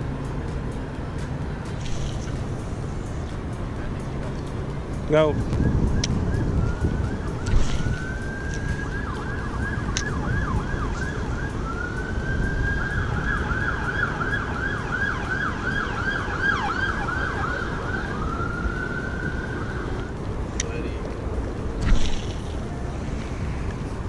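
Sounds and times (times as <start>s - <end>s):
steady low rumble: 0.0s - 24.0s
distant emergency siren: 5.6s - 20.2s.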